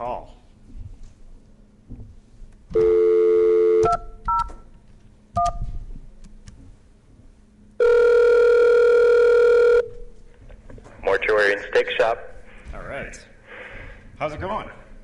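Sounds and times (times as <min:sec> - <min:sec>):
telephone ringing tone: 0:02.8 - 0:04.0, 0:07.8 - 0:09.9
keypad touch-tone beeps: 0:03.7 - 0:04.6, 0:05.4 - 0:05.6
telephone dial tone: 0:07.8 - 0:09.9.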